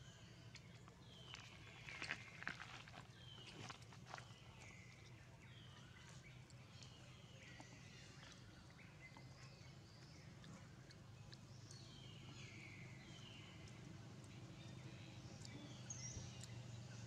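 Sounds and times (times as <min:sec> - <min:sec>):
low steady hum: 0:00.0 - 0:17.0
scattered ticks: 0:06.3 - 0:17.0.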